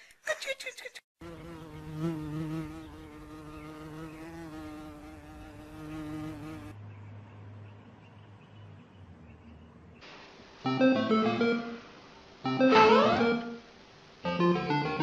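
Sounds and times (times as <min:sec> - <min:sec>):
flying insect buzzing: 0:01.2 - 0:06.8.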